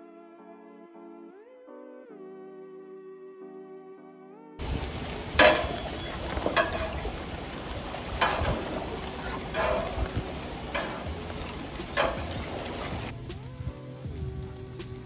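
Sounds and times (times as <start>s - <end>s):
metal spatula scraping grill grates: 4.6s - 13.1s
meat sizzling on grill: 4.6s - 15.0s.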